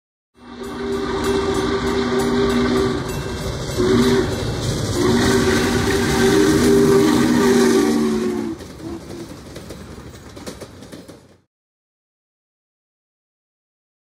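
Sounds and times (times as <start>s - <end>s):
steam locomotive chime whistle: 0.4s - 9.1s.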